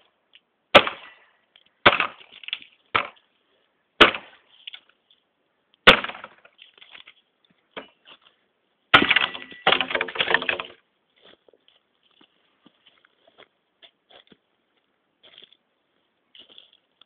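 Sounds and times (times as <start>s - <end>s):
machete chopping wood: 0.7s - 1.1s, 1.8s - 3.2s, 4.0s - 4.4s, 5.8s - 6.5s, 9.0s - 10.7s
dry wood cracking and splintering: 8.9s - 10.8s.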